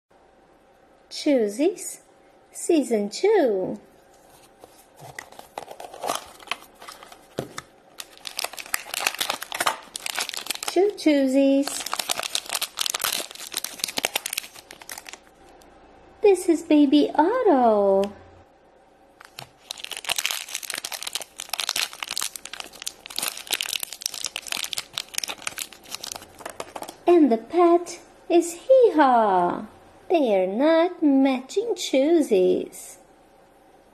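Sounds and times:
wrapper crinkling: 4.1s - 15.4s, 19.2s - 27.0s.

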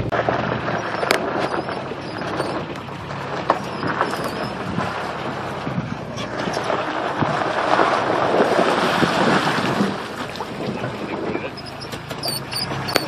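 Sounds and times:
low rumble: 0.0s - 11.6s
tires rolling over gravel and rocks: 0.0s - 13.0s.

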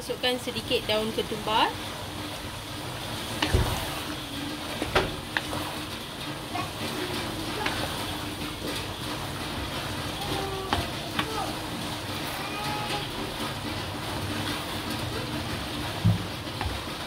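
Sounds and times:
curry simmering and bubbling: 0.4s - 17.0s.

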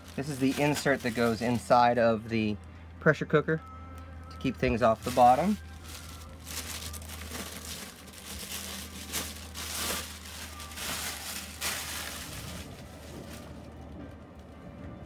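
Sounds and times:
plastic bag crinkling: 0.0s - 1.8s, 4.8s - 13.9s.

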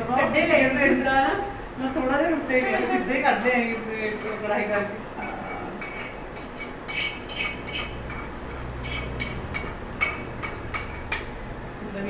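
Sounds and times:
spatula scraping frying pan: 2.6s - 11.4s.

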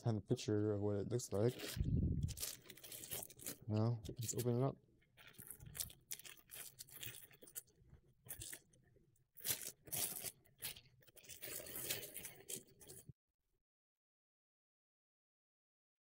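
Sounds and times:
plastic wrapping crinkling and tearing: 1.3s - 4.6s, 5.2s - 8.7s, 9.4s - 13.1s.

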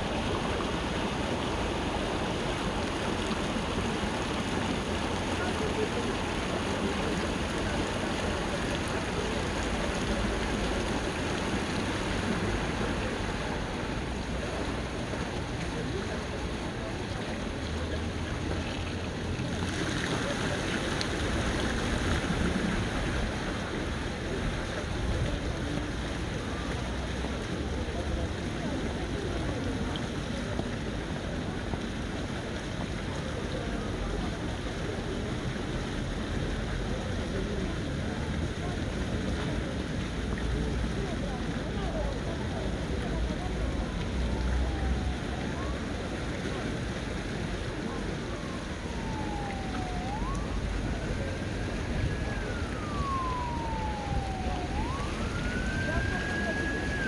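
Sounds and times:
faint distant voices: 0.0s - 57.0s
steady hiss and low rumble: 0.0s - 57.0s
street noise: 0.0s - 57.0s
emergency siren wailing: 47.8s - 57.0s.

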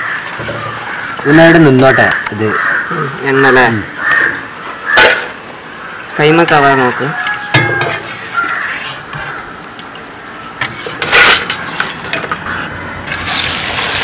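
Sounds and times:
chips rattling into steel strainer: 13.1s - 14.0s
slices sizzling in hot oil: 13.1s - 14.0s.

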